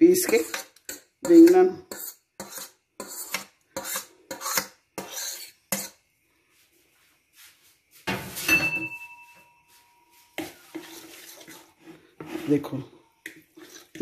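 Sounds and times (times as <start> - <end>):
metal utensil scraping a plate: 0.2 - 6.0, 10.4 - 12.8, 13.5 - 14.0
kitchenware clattering: 8.1 - 9.4.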